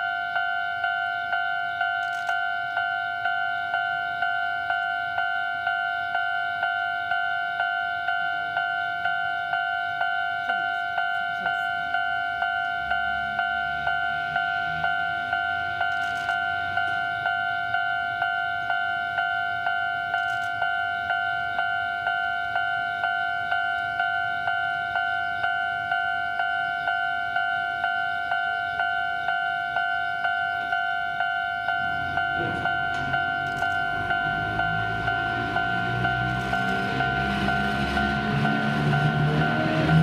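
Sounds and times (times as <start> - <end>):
level crossing warning bell: 0.0 - 40.0
train rumble: 9.9 - 40.0.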